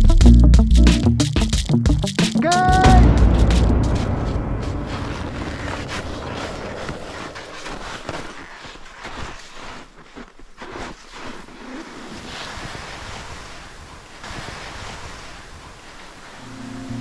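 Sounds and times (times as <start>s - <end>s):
music: 0.0s - 4.7s, 16.4s - 17.0s
wind on microphone: 3.1s - 8.3s
skis sliding through snow: 4.8s - 17.0s.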